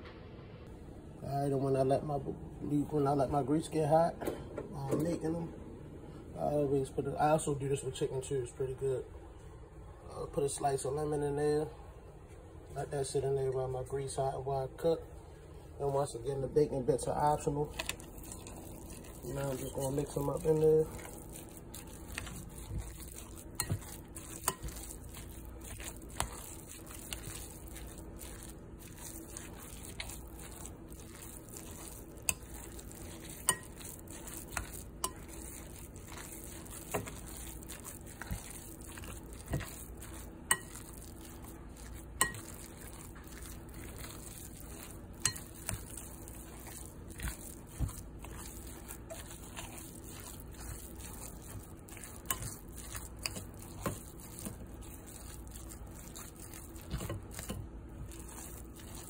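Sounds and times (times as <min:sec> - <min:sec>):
spoon stirring thick mixture: 0:15.8 - 0:59.0
spoon clinking against glass bowl: 0:31.1 - 0:41.2, 0:41.8 - 0:43.4, 0:44.8 - 0:46.8.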